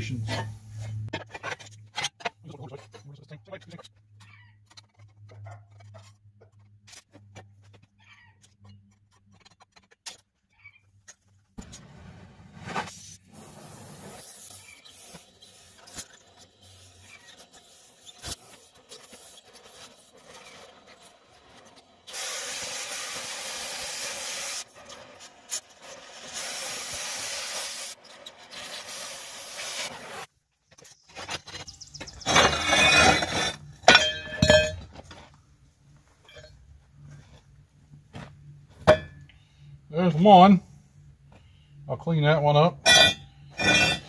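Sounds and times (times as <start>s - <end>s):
cutting torch hissing: 12.8s - 30.3s
metallic clanking with ringing: 32.3s - 35.0s, 42.8s - 44.0s.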